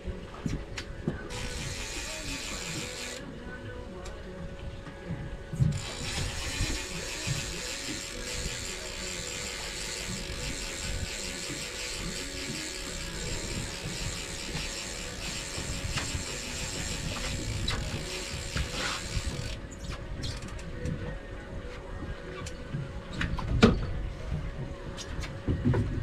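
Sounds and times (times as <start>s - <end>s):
fishing reel ratchet ticking: 1.3s - 3.2s, 5.7s - 19.6s.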